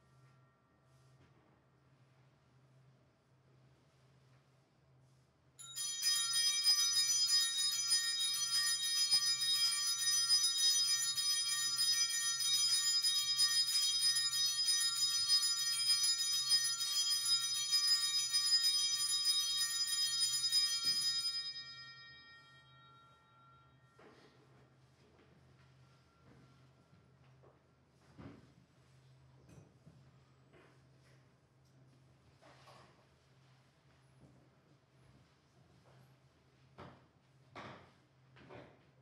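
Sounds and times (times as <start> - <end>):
small bells jangling: 5.6 - 23.7.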